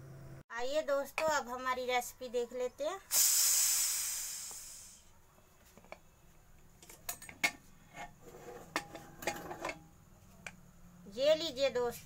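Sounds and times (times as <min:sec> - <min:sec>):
steam hissing from pressure cooker: 0:03.1 - 0:05.2
metallic clinks and knocks: 0:06.8 - 0:10.6.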